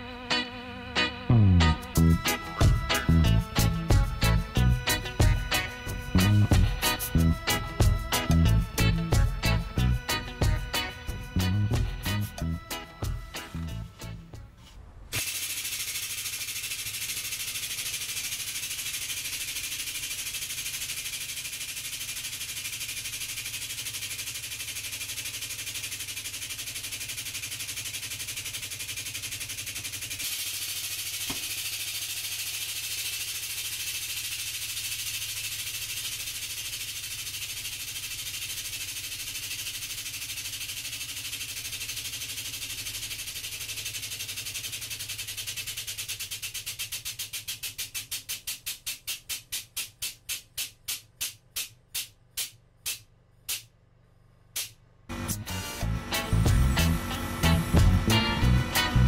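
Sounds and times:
hydraulic press hissing and humming: 55.1 - 59.0.

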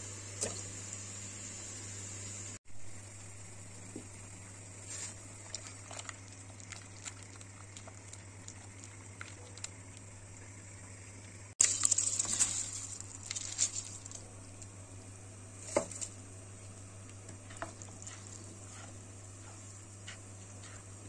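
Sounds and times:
rice sizzling in boiling water: 0.0 - 21.0.

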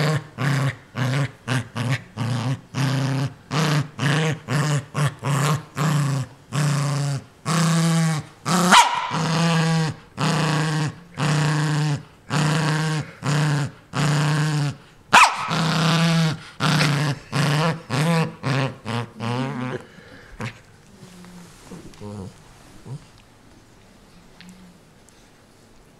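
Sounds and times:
small dog growling: 0.0 - 23.2
dog barking: 8.7 - 9.2, 15.1 - 15.6.

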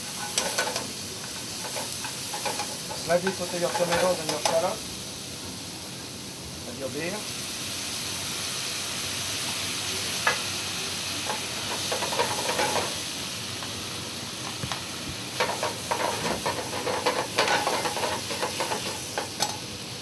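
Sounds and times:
metal tongs scraping a pan: 0.0 - 4.7, 11.3 - 12.9, 15.4 - 19.6
fish sizzling in a pan: 0.0 - 20.0.

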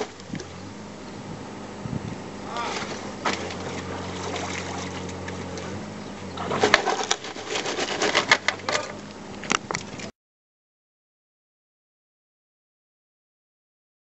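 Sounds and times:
power unit humming: 0.0 - 10.1.

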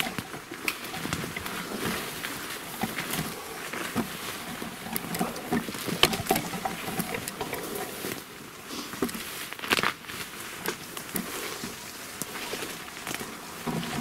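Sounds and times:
twigs snapping: 8.9 - 14.0.

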